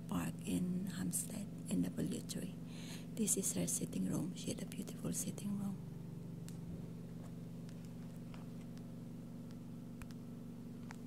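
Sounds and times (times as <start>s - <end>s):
oxygen concentrator humming: 0.0s - 11.0s.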